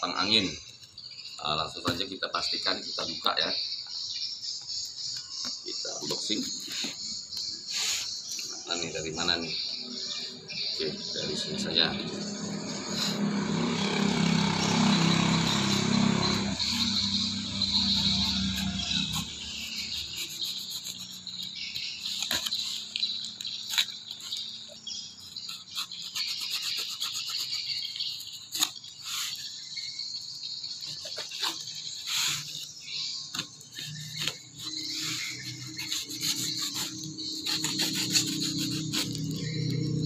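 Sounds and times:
high insect chirr: 0.0s - 40.0s
cardboard tearing: 13.6s - 29.6s, 30.8s - 39.8s
knife slitting packing tape: 14.7s - 29.5s, 30.8s - 39.7s.

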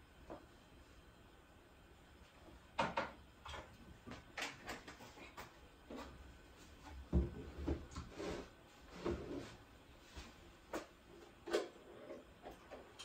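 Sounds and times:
soft knocks and thumps: 6.9s - 8.1s.

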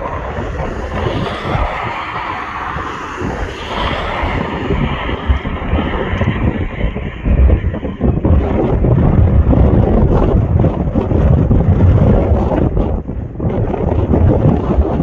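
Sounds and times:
jet engines running: 0.0s - 15.0s
wind buffeting microphone: 0.0s - 15.0s.

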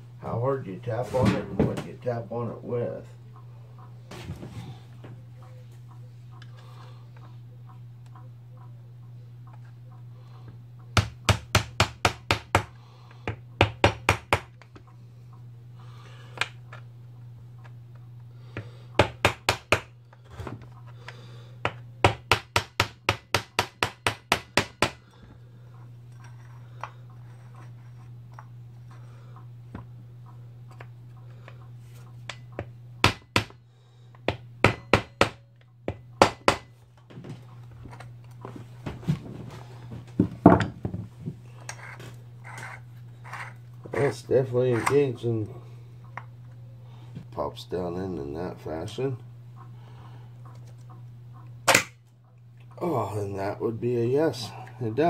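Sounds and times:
steady low hum: 0.0s - 55.0s
hammer tapping on brass: 34.2s - 36.7s.

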